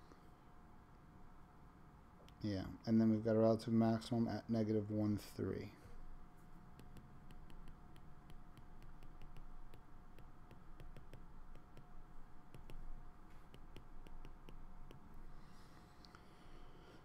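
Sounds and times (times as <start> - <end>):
stylus tapping on glass screen: 6.7 - 11.9, 12.5 - 15.0.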